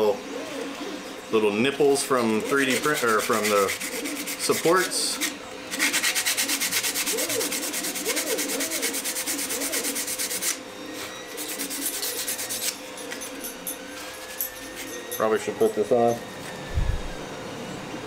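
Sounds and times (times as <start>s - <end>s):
sandpaper scratching on plastic: 2.2s - 10.6s, 11.4s - 12.8s.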